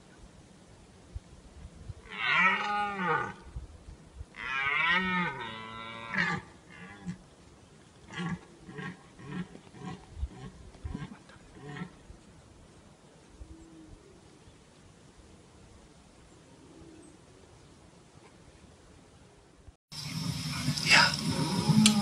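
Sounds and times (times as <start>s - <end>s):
deer stag roaring: 2.1s - 3.4s, 20.5s - 22.0s.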